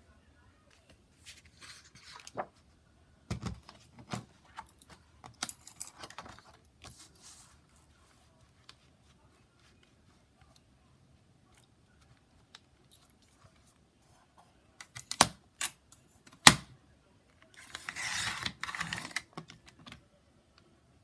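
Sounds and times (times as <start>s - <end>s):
blade rasping through paper: 17.7s - 18.9s.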